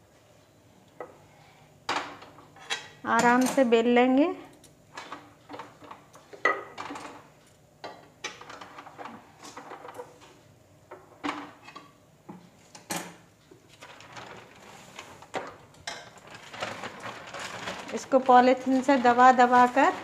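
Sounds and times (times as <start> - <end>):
plastic sheet crinkling: 13.7 - 20.0.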